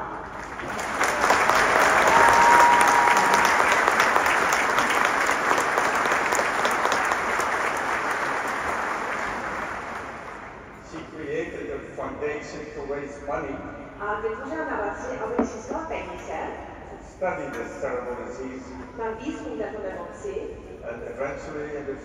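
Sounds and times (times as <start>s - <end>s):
audience applauding: 0.2s - 10.6s.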